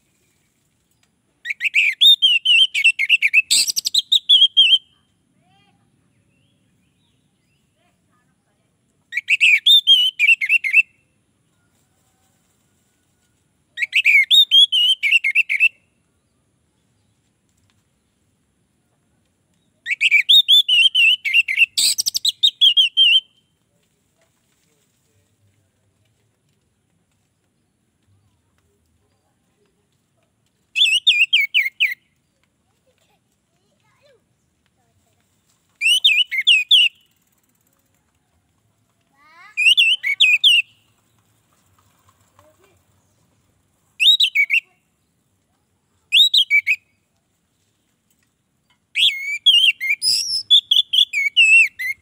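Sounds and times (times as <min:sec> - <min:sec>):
thrush singing whistled notes: 0:01.5 - 0:04.9, 0:09.2 - 0:11.0, 0:13.8 - 0:15.8, 0:19.9 - 0:23.4, 0:30.8 - 0:32.1, 0:35.8 - 0:37.1, 0:39.5 - 0:40.8, 0:44.0 - 0:44.7, 0:46.1 - 0:47.0, 0:49.0 - 0:52.0.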